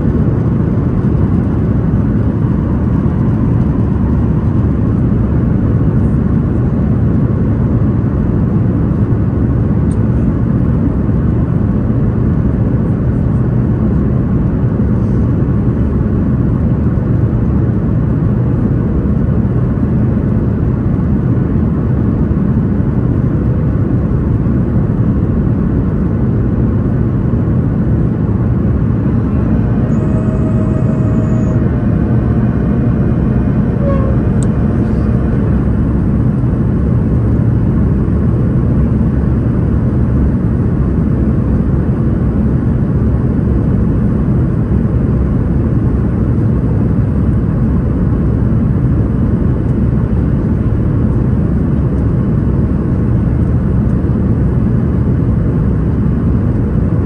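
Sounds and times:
airplane cabin rumble: 0.0s - 57.0s
faint brief tones: 29.1s - 33.0s, 33.7s - 35.2s.

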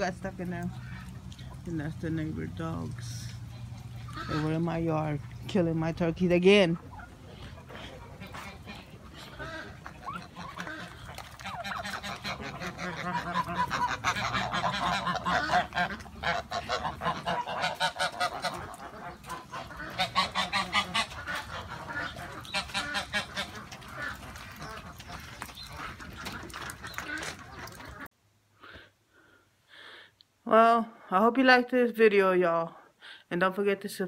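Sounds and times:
poultry honking calls: 2.6s - 5.7s, 6.4s - 28.1s.

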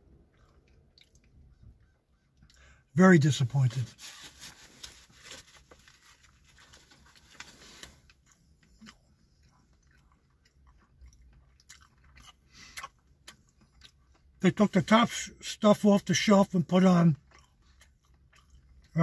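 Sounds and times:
man chewing sandwich: 0.0s - 2.8s, 4.0s - 14.4s, 17.2s - 19.0s.

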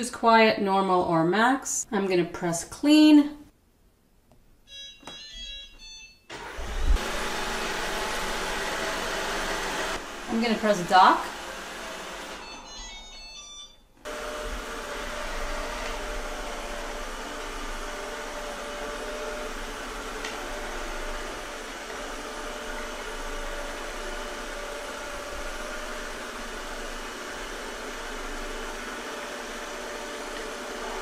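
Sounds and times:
robot vacuum whirring: 6.3s - 13.4s, 14.0s - 31.0s.

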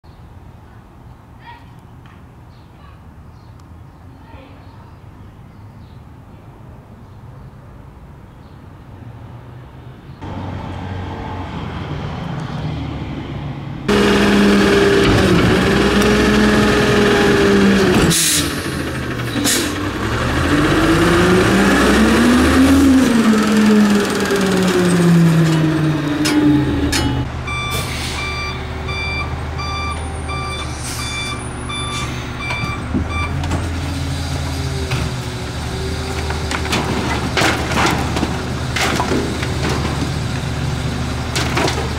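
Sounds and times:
garbage truck engine revving: 13.9s - 41.9s
reversing alarm beeping: 26.2s - 33.4s.

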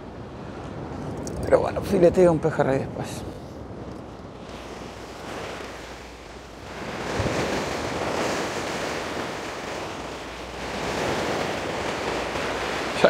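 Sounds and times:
wind on microphone: 0.0s - 13.0s
waves washing against rocks: 4.3s - 13.0s.

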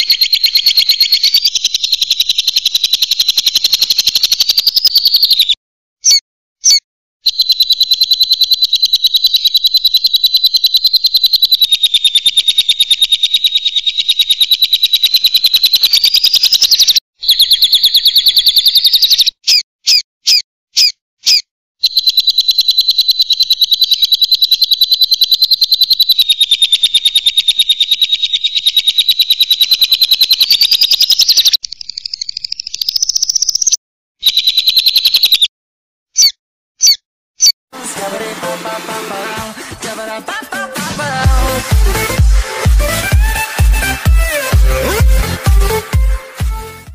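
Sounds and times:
lovebird chattering: 0.0s - 35.5s, 36.2s - 37.6s.

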